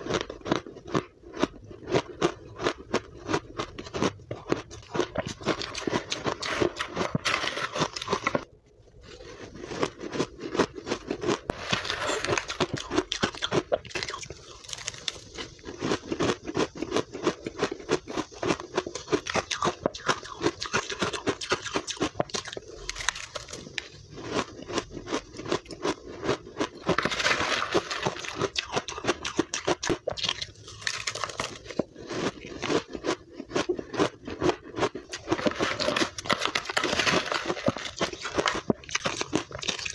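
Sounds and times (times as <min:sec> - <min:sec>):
chewing crushed ice: 0:00.0 - 0:39.9
metal spoon scraping ice: 0:05.3 - 0:08.4, 0:11.5 - 0:16.1, 0:26.7 - 0:29.6, 0:35.0 - 0:39.9.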